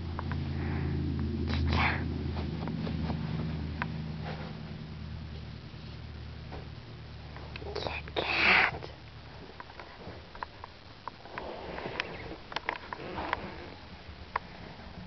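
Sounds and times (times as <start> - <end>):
loud breathy rush: 0.4 - 2.1.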